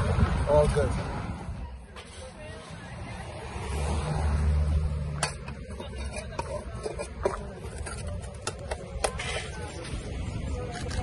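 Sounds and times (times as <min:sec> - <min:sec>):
shovel scraping on concrete: 0:01.9 - 0:02.9, 0:05.2 - 0:11.0.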